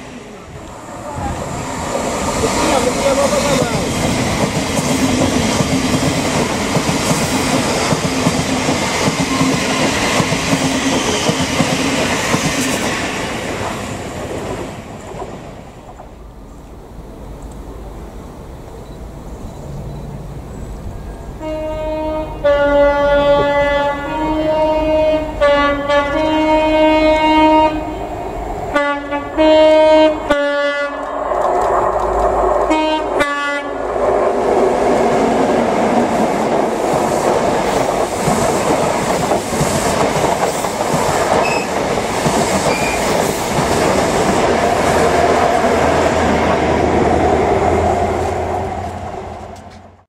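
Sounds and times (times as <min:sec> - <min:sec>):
train rushing past on rails: 0:00.0 - 0:50.0
two-note train horn blasts: 0:21.4 - 0:31.0, 0:32.7 - 0:33.8.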